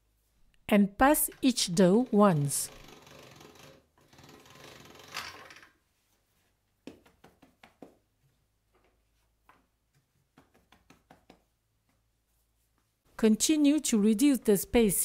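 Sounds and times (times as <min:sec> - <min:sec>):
cloth bundle patting dough: 0:06.1 - 0:13.1.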